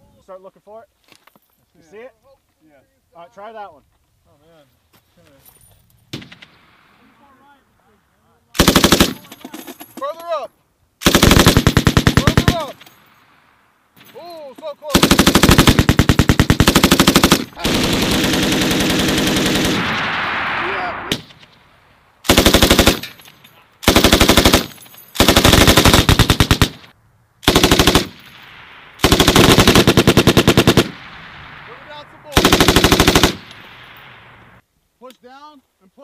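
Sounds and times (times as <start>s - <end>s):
machine gun bursts: 8.6s - 9.5s, 11.0s - 12.8s, 14.9s - 19.8s, 22.3s - 23.2s, 23.8s - 26.8s, 27.5s - 28.2s, 29.0s - 31.0s, 32.4s - 33.6s.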